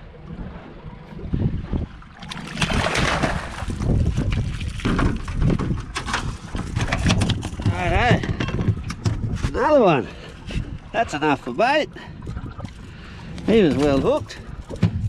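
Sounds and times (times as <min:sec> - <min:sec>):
wind rumble on microphone: 0:00.0 - 0:15.0
fish splashing: 0:02.1 - 0:05.4
fish flapping against metal hull: 0:02.3 - 0:09.5.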